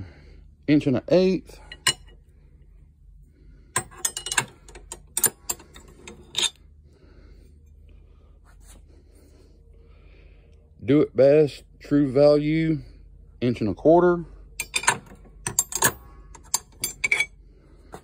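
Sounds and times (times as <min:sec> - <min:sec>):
tool handling sounds: 0:01.6 - 0:02.2, 0:03.8 - 0:06.6, 0:14.6 - 0:18.0
wrenches clinking: 0:01.6 - 0:02.2, 0:03.8 - 0:06.6, 0:14.6 - 0:17.4.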